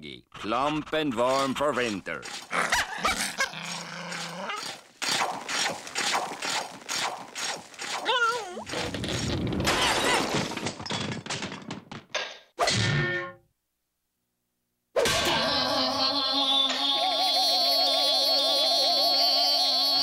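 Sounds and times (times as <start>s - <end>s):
cartoon crashes and shattering: 4.6s - 11.9s, 12.6s - 13.4s, 15.0s - 15.8s.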